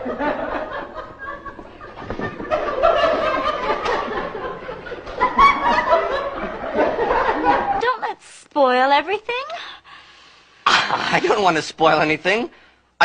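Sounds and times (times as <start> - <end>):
people laughing: 0.0 - 7.8.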